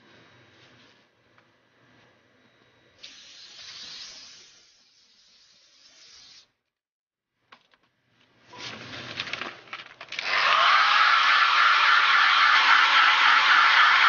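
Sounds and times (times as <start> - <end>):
blown air hissing: 3.0 - 6.5.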